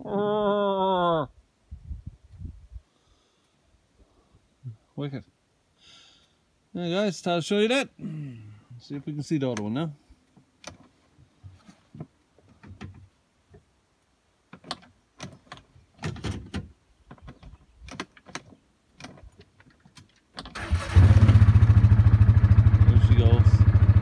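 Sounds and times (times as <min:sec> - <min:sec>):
faint clicks and rustles: 0:09.5 - 0:20.5
engine starting and idling: 0:20.5 - 0:24.0.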